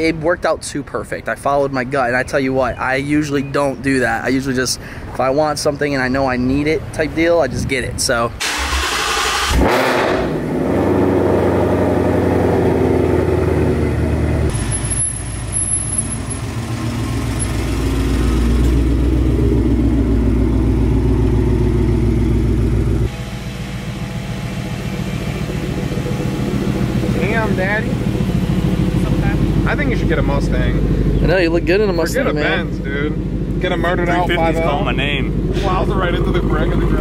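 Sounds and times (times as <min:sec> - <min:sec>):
car engines running: 0:00.0 - 0:37.0.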